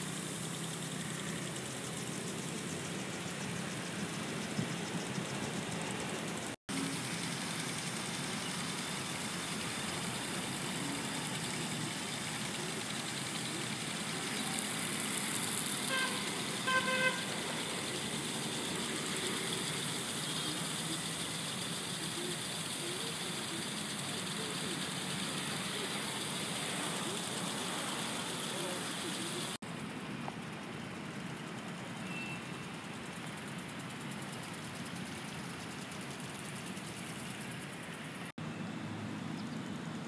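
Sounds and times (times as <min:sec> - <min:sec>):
high hiss: 0:00.0 - 0:38.3
city traffic hum: 0:00.0 - 0:40.0
car horn toots: 0:15.9 - 0:17.5.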